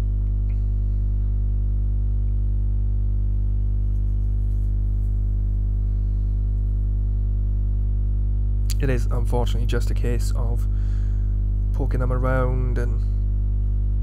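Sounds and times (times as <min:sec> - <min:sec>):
low synthesizer note: 0:00.0 - 0:14.0.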